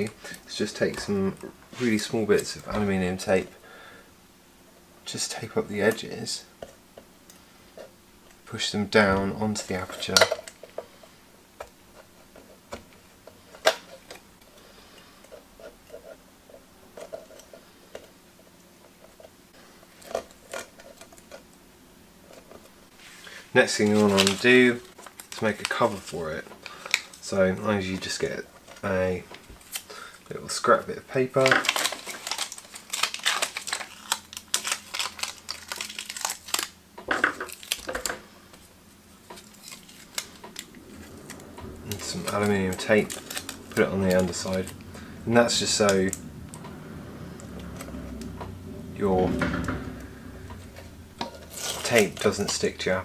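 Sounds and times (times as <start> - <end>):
tape crinkling: 23.6 - 53.0.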